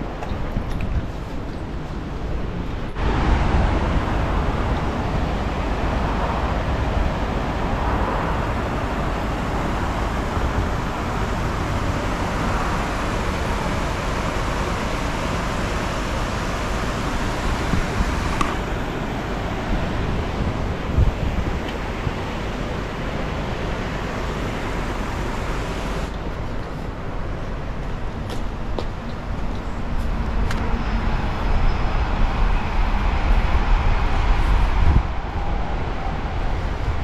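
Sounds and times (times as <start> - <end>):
wind buffeting microphone: 0.0 - 37.0
river rushing over a weir: 3.0 - 26.4.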